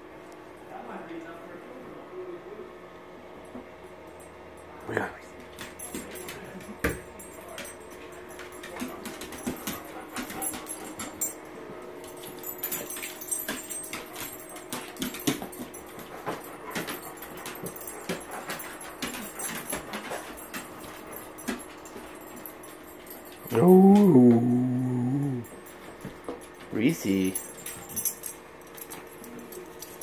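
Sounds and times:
dogs whimpering and whining: 0:23.4 - 0:25.5.

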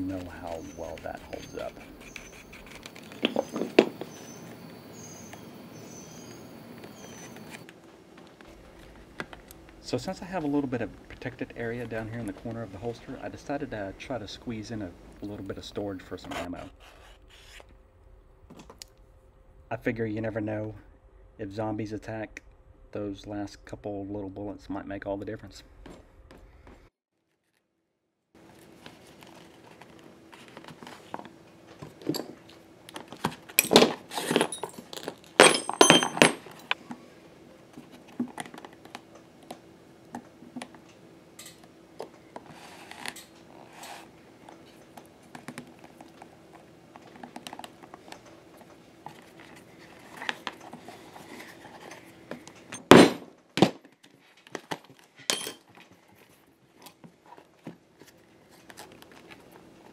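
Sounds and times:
faint steady hum: 0:00.0 - 0:26.9, 0:28.4 - 0:59.9
clicks and metallic clinks: 0:55.2 - 0:55.7.

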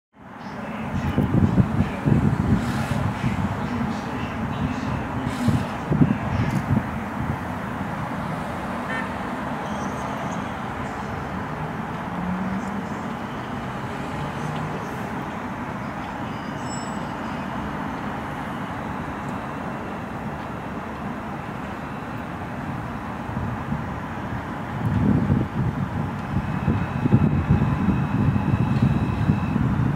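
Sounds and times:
subway train wheels rumbling on rails: 0:00.5 - 0:29.9.

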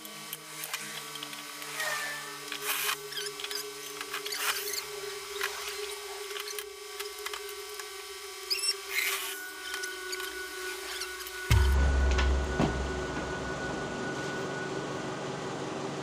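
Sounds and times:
steady machine hum: 0:00.0 - 0:16.0
short high squeaks: 0:08.4 - 0:11.5.

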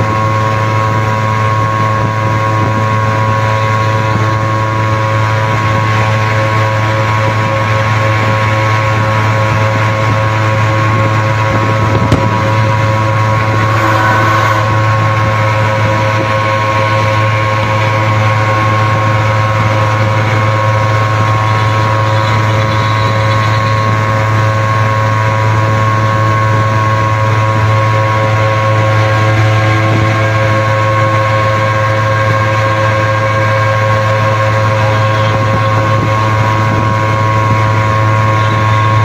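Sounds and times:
two-stroke van engines running: 0:00.0 - 0:39.0
steady rushing noise: 0:11.0 - 0:18.5.

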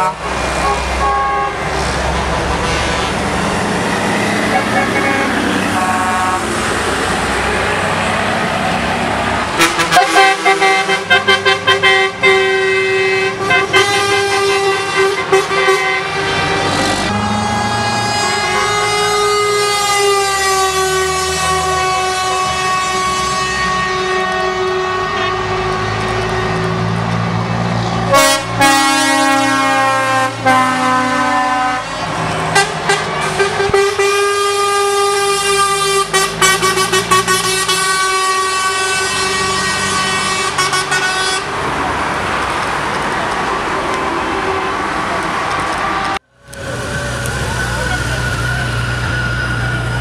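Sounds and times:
truck air horns: 0:00.0 - 0:03.5, 0:04.3 - 0:07.1, 0:09.5 - 0:41.6
diesel engines rumbling: 0:00.0 - 0:50.0.

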